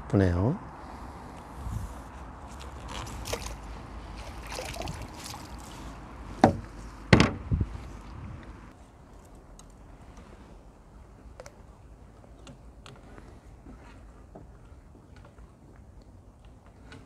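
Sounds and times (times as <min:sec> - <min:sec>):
light water noise: 0:00.7 - 0:17.0
rustling: 0:01.7 - 0:07.0
sharp knocks: 0:06.4 - 0:07.4.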